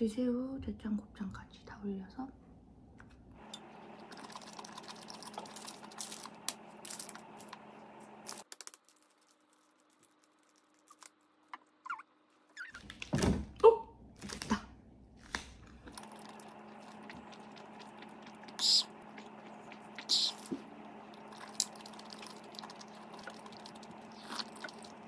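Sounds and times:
room hum: 0:00.0 - 0:25.0
chewing: 0:03.4 - 0:07.5, 0:15.8 - 0:25.0.

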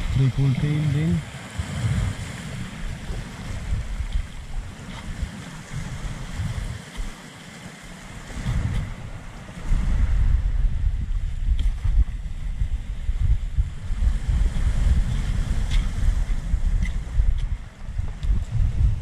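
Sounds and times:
small waves on pebbly shore: 0:00.0 - 0:10.4
wind buffeting microphone: 0:00.0 - 0:19.0.

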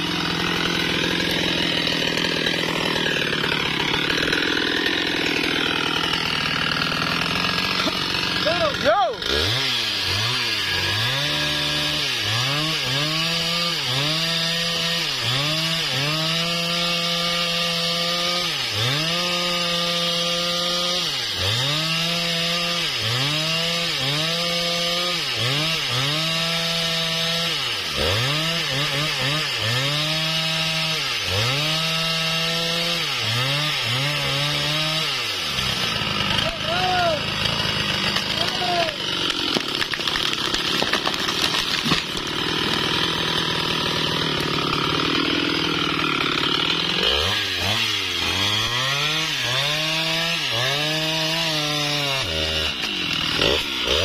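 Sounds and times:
chainsaw sawing into trunk: 0:00.0 - 0:54.0.

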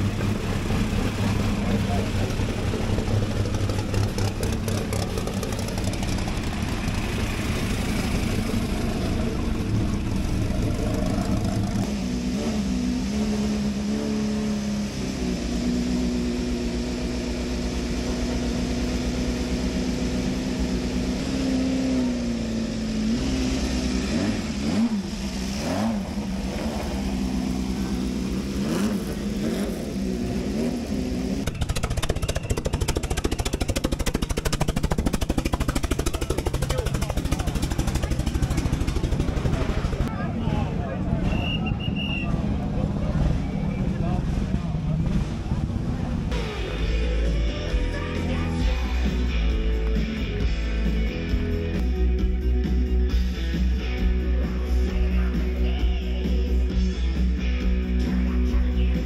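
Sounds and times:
racing car engine idling and blipped: 0:00.0 - 0:59.0
racing car engine turning over: 0:31.4 - 0:40.1.

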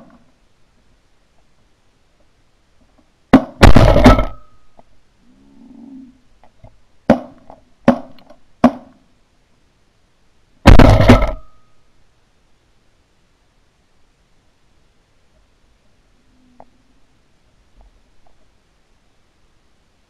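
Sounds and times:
shotgun shots: 0:03.3 - 0:04.6, 0:10.6 - 0:11.6.

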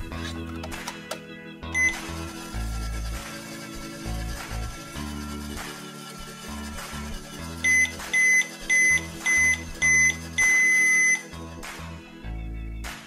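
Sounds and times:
background music: 0:00.0 - 0:13.0
toy microwave beeping: 0:01.7 - 0:02.3, 0:07.6 - 0:11.3.

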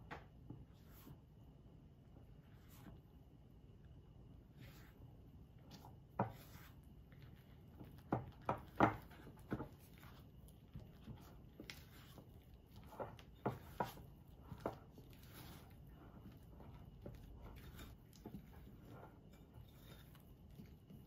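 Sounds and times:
spatula scraping batter in bowl: 0:04.4 - 0:21.0.

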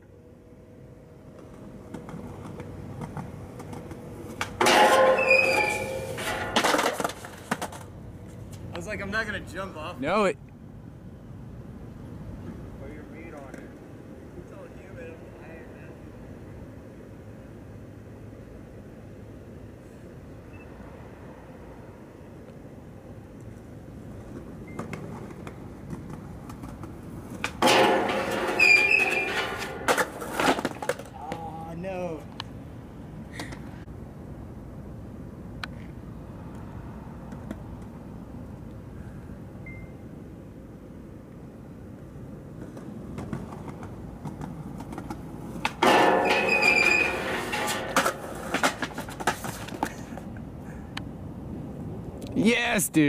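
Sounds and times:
skateboard wheels rolling on concrete: 0:00.0 - 0:53.0
skateboard grinding on metal rail: 0:03.0 - 0:07.8, 0:27.4 - 0:31.2, 0:43.3 - 0:50.1
rail ringing high tone: 0:04.7 - 0:06.6, 0:45.8 - 0:48.4.

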